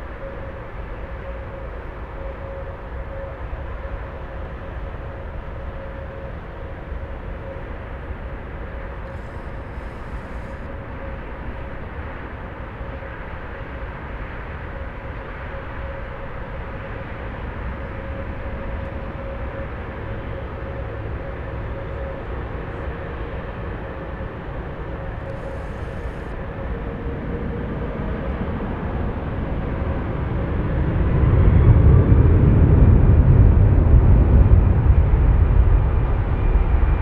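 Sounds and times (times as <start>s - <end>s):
jet engines running: 0.0s - 37.0s.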